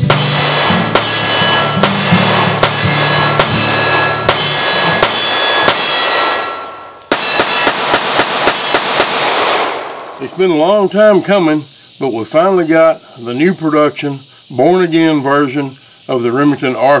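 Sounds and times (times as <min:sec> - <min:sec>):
pistol shots: 0:00.0 - 0:10.5.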